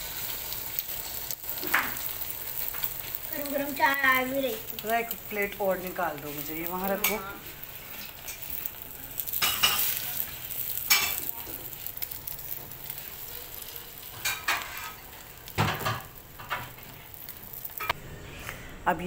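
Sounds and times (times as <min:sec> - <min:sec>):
egg sizzling on griddle: 0:00.0 - 0:18.0
spatula scraping and tapping pan: 0:06.9 - 0:07.3, 0:14.1 - 0:18.0.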